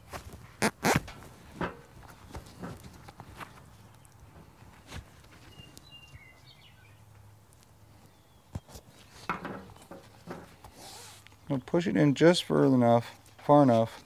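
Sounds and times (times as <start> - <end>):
bird chirping: 5.4 - 7.2, 8.0 - 8.9
soft handling clicks and knocks: 8.5 - 10.7.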